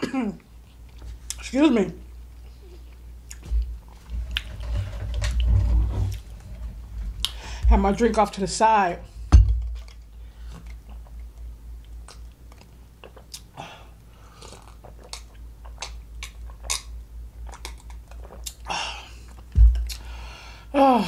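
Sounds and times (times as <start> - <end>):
loud thump: 9.3 - 9.8
breathy exhale: 20.0 - 20.7.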